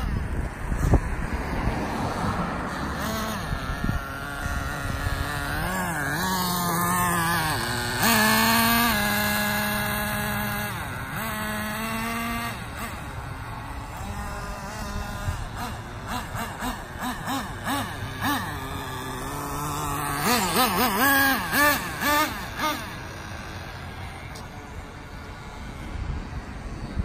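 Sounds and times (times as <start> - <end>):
small nitro engine running: 0.0 - 27.0.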